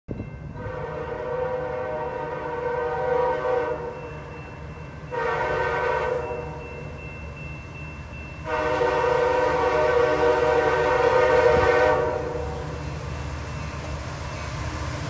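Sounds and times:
train rumbling: 0.1 - 15.0
locomotive air horn blasts: 0.5 - 4.1, 5.1 - 6.6, 8.4 - 12.8.

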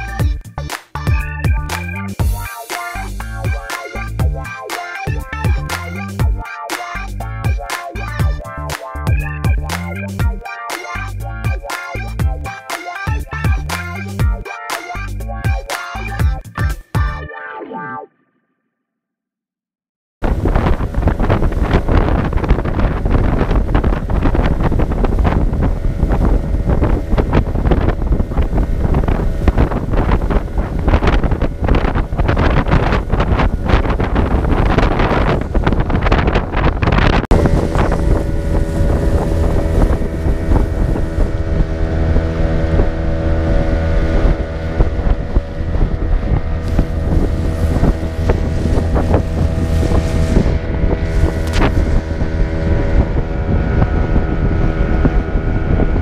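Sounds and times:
motorboat engine running: 0.0 - 17.2, 20.2 - 56.0
water rushing past hull: 20.2 - 56.0
wind buffeting microphone: 20.2 - 56.0.

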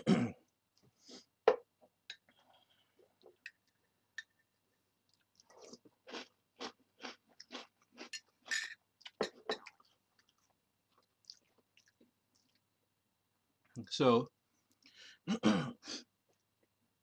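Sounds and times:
crunchy chewing of cereal: 5.1 - 12.6.

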